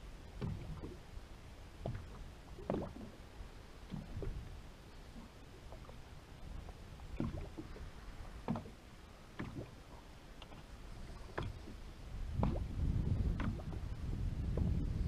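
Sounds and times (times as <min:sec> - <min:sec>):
water lapping against boat hull: 0:00.0 - 0:15.0
short splashes or knocks: 0:01.8 - 0:03.1, 0:05.2 - 0:13.8.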